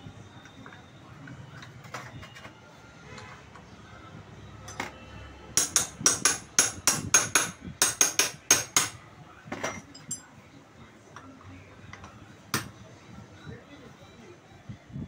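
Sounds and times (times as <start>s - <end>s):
hammer striking metal: 5.6s - 9.0s.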